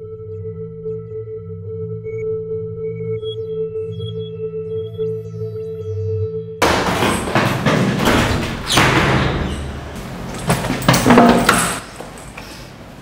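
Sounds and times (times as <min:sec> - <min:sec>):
knocks and thumps: 0:06.6 - 0:12.2
doors banging open: 0:06.6 - 0:13.0.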